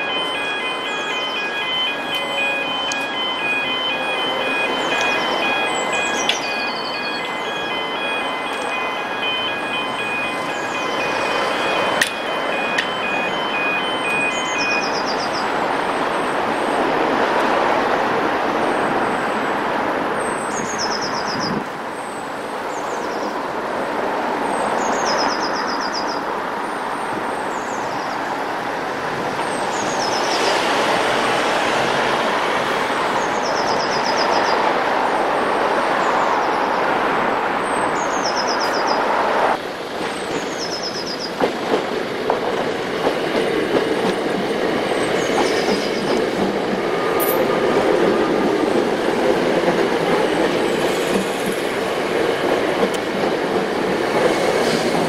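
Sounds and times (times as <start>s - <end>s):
high descending chirping: 0.0s - 15.5s.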